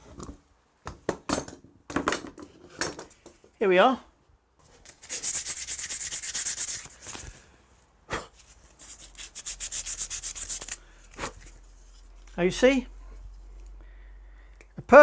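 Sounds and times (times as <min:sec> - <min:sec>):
sandpaper rubbing on wood: 0:05.0 - 0:07.0, 0:08.7 - 0:10.8.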